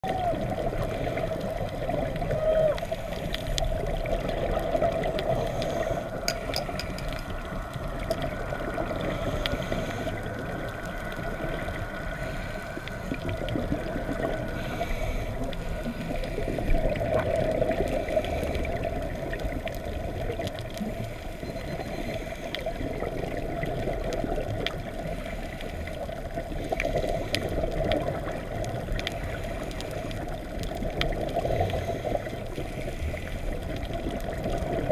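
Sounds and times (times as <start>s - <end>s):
underwater low rushing: 0.0s - 34.9s
faint clicks: 1.2s - 8.5s.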